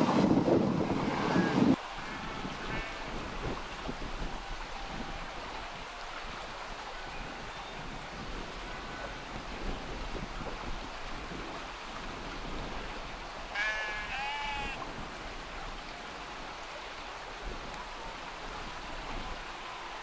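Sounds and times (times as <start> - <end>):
sheep bleating: 1.0 - 3.3, 13.5 - 14.8.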